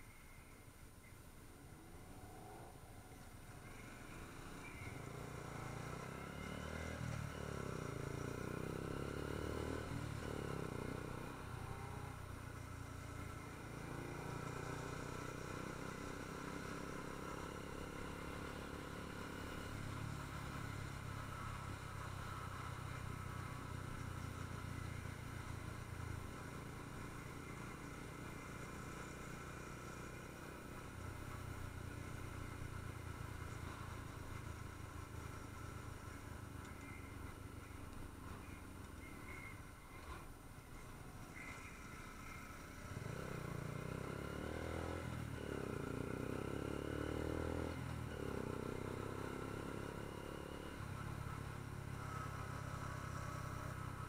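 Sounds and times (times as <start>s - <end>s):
motorcycle engine running: 3.5s - 54.0s.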